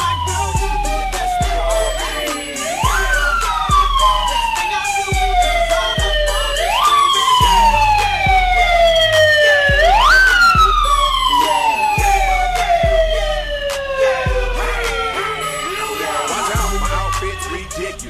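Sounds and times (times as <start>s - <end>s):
hip-hop backing track: 0.0s - 18.0s
siren-style wail: 0.0s - 18.0s
steady bass: 0.0s - 18.0s
deep kick-drum hits: 9.7s - 10.8s.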